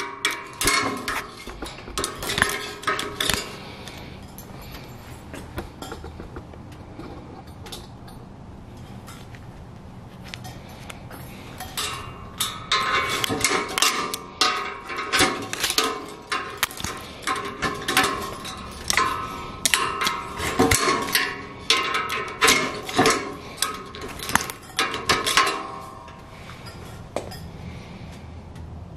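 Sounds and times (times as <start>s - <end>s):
wire twisted with pliers: 0.0s - 6.1s, 11.6s - 27.4s.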